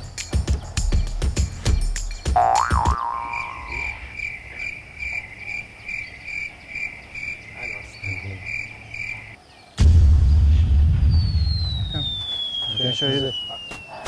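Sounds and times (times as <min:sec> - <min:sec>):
cricket chirping: 0:00.0 - 0:10.4.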